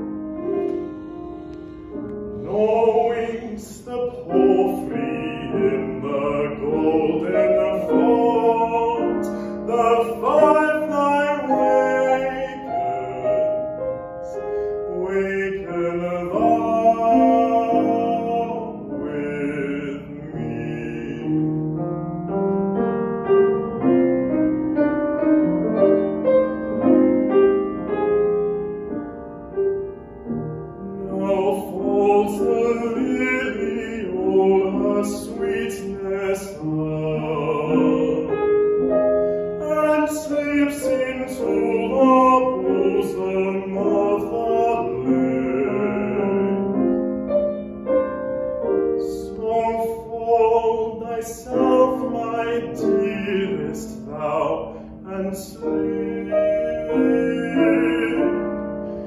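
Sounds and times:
grand piano accompaniment: 0:00.0 - 0:59.0
man singing classical song: 0:00.0 - 0:59.0.

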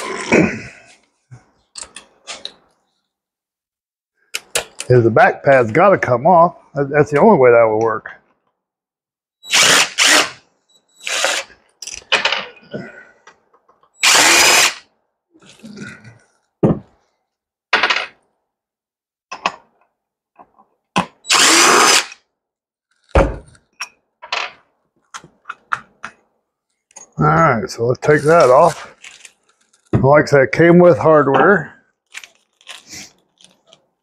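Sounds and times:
power drill bursts: 0:09.4 - 0:10.4, 0:11.0 - 0:11.5, 0:14.0 - 0:14.8, 0:21.2 - 0:22.2.

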